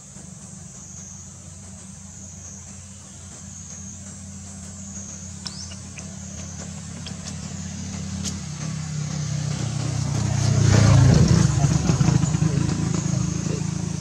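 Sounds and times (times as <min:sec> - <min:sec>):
high-pitched hiss: 0:00.0 - 0:14.0
vehicle engine running: 0:00.0 - 0:14.0.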